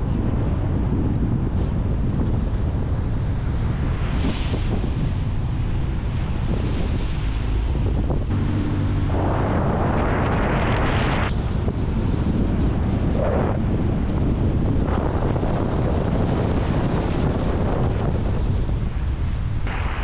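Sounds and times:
wind rumble on microphone: 0:00.0 - 0:20.0
tyres hissing on wet pavement: 0:19.7 - 0:20.0.

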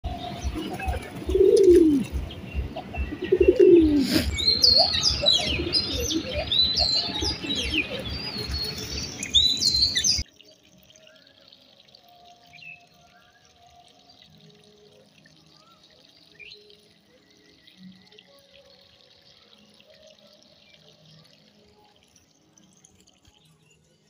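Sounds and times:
songbirds chirping: 0:00.0 - 0:24.0
pigeons cooing: 0:00.1 - 0:09.0.

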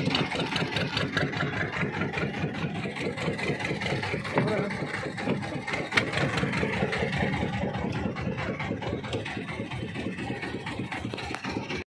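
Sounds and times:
boat engine running: 0:00.0 - 0:11.9.

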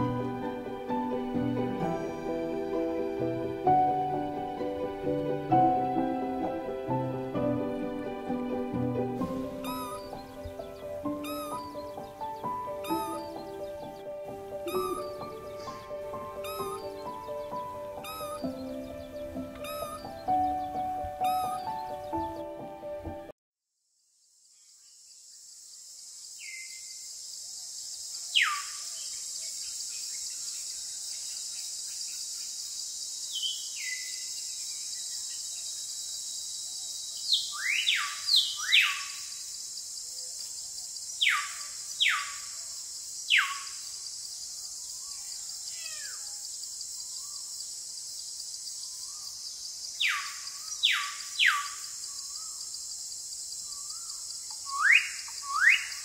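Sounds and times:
steady high-pitched hiss: 0:00.0 - 0:22.2, 0:23.9 - 0:56.0
bird whistled calls: 0:09.6 - 0:12.0, 0:12.8 - 0:13.5, 0:14.6 - 0:17.3, 0:18.0 - 0:18.8, 0:19.6 - 0:20.5, 0:21.2 - 0:21.9, 0:28.4 - 0:28.8, 0:37.3 - 0:39.2, 0:41.2 - 0:42.4, 0:43.3 - 0:43.7, 0:50.0 - 0:52.6, 0:53.8 - 0:56.0.

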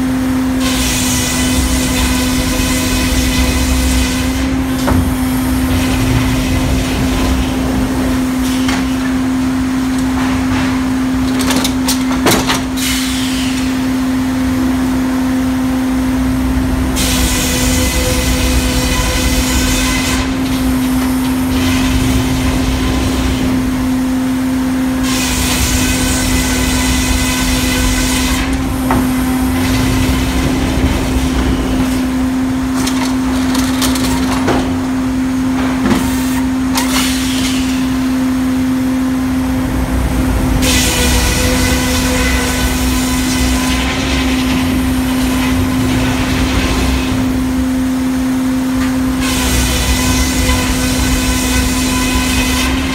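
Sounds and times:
saw cutting log whine: 0:00.0 - 0:10.6, 0:12.6 - 0:34.1, 0:35.6 - 0:52.9
sawmill humming: 0:00.0 - 0:52.9.

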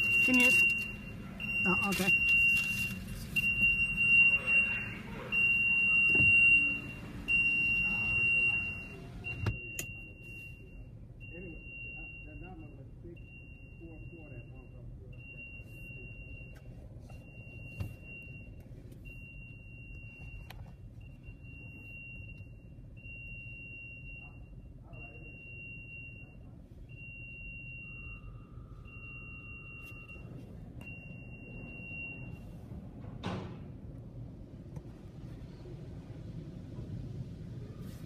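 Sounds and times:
high electronic warning beep: 0:00.0 - 0:16.6, 0:21.0 - 0:32.4
car wash low rumble: 0:00.0 - 0:38.0.

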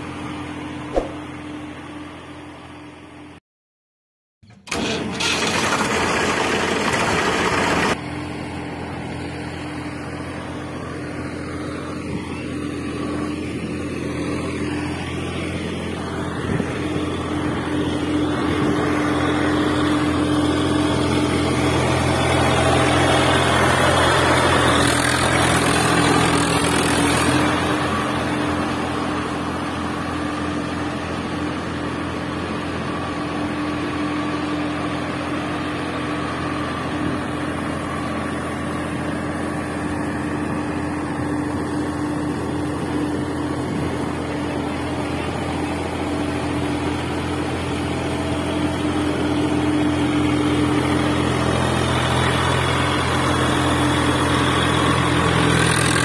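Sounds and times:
engine-like hum: 0:00.0 - 0:03.4, 0:04.4 - 0:56.0
loud rushing noise: 0:00.9 - 0:01.3.

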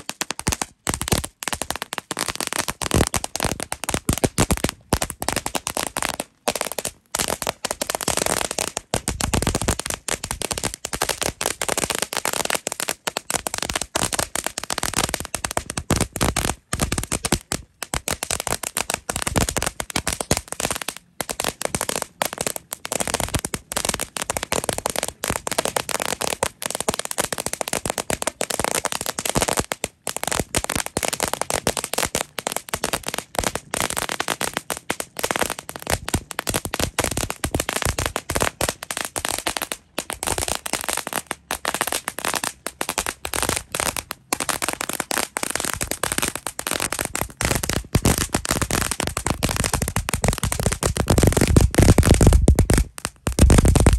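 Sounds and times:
firecrackers cracking and popping: 0:00.0 - 0:53.9.

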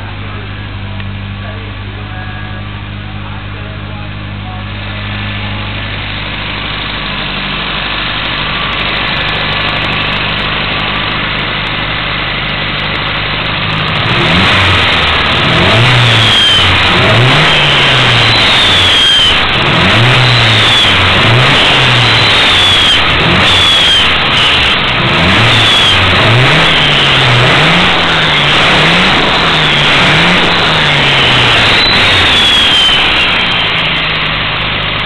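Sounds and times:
car engine idling and revving: 0:00.0 - 0:35.0
high falling turbo whistle: 0:14.8 - 0:34.4.

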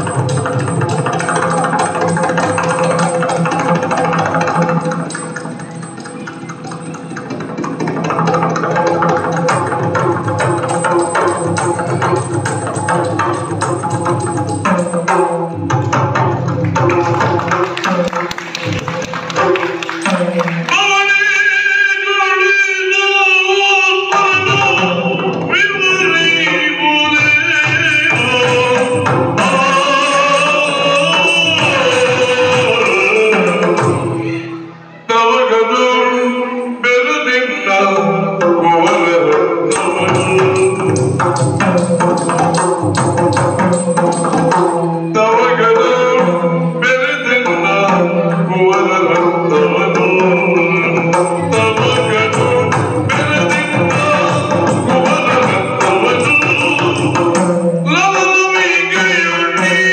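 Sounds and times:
person singing melodic line: 0:17.0 - 0:42.9
barrel drums rhythm: 0:39.7 - 0:44.9.

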